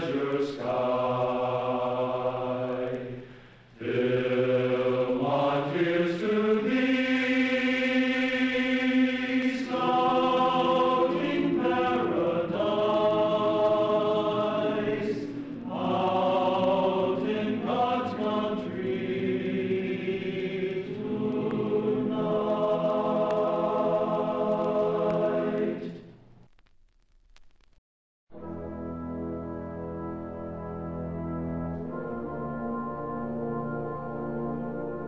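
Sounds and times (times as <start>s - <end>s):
choir singing held chords: 0.0s - 26.1s.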